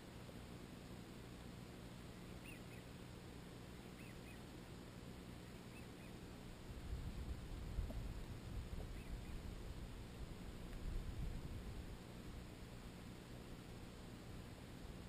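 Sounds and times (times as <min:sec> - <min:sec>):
low steady background noise: 0:00.0 - 0:15.0
ducks calling: 0:02.3 - 0:03.0, 0:03.8 - 0:04.5, 0:05.4 - 0:06.2, 0:08.8 - 0:09.5.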